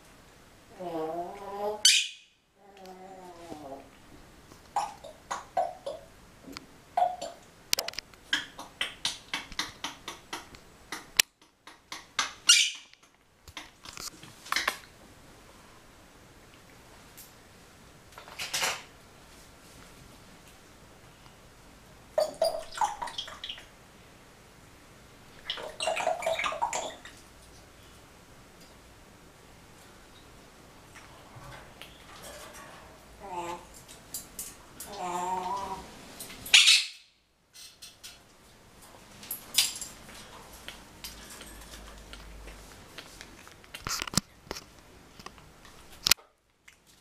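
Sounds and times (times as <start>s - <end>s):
parrot chattering: 0.8s - 2.2s.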